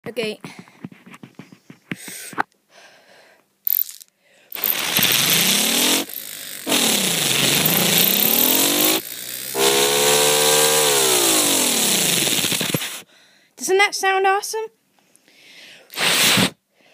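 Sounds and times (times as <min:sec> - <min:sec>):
loud hiss: 0:15.9 - 0:16.6.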